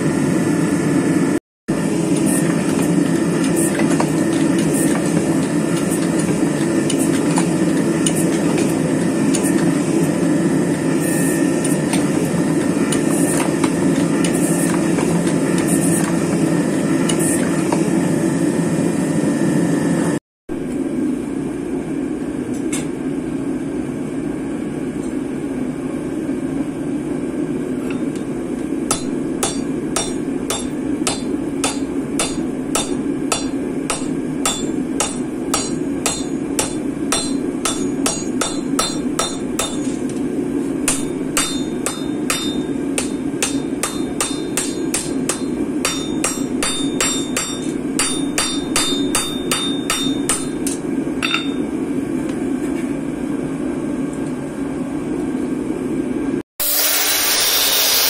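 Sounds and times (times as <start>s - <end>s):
gas forge burner roaring: 0.0s - 58.0s
hammer striking ringing steel: 28.9s - 39.9s, 40.8s - 51.7s.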